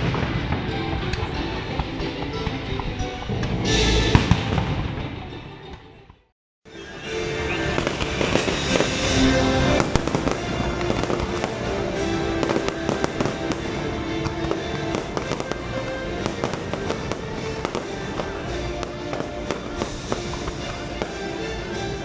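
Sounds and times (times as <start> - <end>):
fireworks bangs and crackles: 0.0 - 5.2, 7.4 - 22.0
show music with held notes: 0.0 - 6.0, 6.7 - 22.0.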